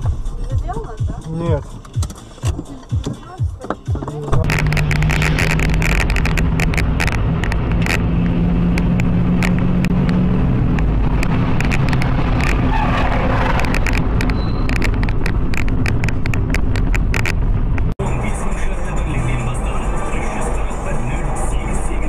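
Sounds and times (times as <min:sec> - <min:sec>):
car engine running: 0:00.0 - 0:22.0
road noise: 0:00.0 - 0:22.0
sharp clicks and knocks: 0:01.0 - 0:18.0.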